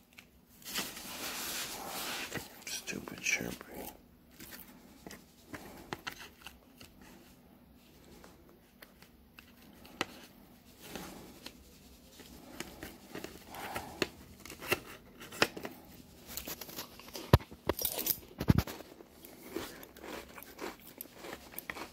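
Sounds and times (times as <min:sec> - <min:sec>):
crackers handled in plastic tray: 0:07.9 - 0:11.7, 0:12.3 - 0:21.9.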